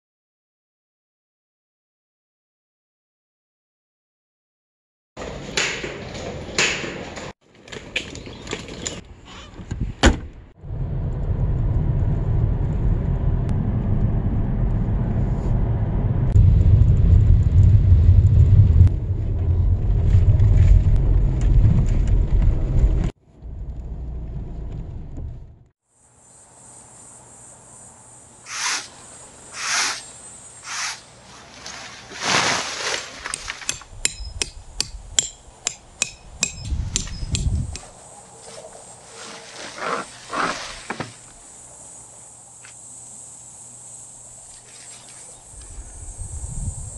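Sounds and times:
car engine rumble from inside: 10.6 - 25.7
crickets chirring: 25.8 - 32.4, 37.0 - 46.9
nylon fabric rustling: 30.7 - 33.6.

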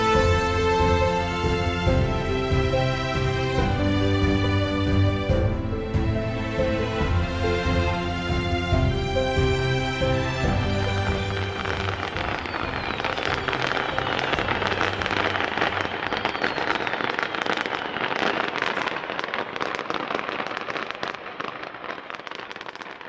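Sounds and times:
fireworks crackling: 0.0 - 8.5, 9.3 - 23.0
music: 0.0 - 18.3.

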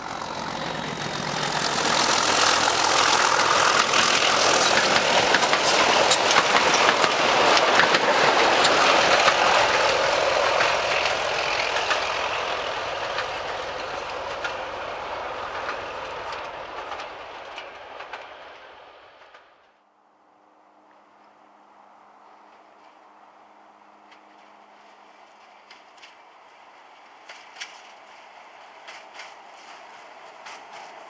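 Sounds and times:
diesel locomotive engine running: 0.0 - 19.6, 22.4 - 31.0
train wheels clicking over joints: 0.0 - 19.7, 24.1 - 31.0.

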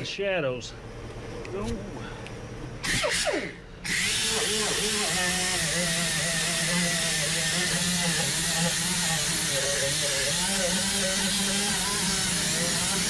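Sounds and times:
power drill scrubbing metal: 2.8 - 13.0.

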